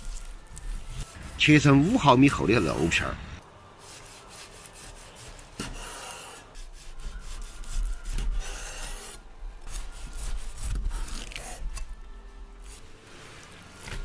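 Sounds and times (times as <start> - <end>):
cleaver rasping through crackling: 4.5 - 12.0.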